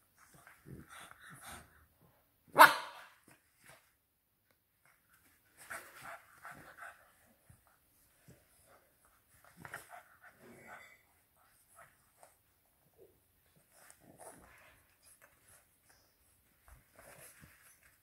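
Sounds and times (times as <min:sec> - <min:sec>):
puppies playing: 0:00.0 - 0:02.5, 0:04.8 - 0:18.0
puppy barking: 0:02.5 - 0:03.1.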